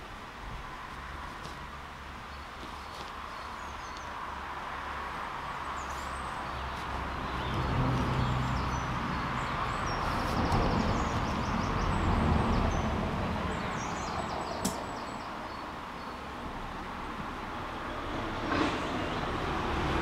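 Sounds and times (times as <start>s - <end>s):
small birds chirping: 2.1s - 4.4s, 5.5s - 16.4s
sharp click: 14.6s - 14.8s.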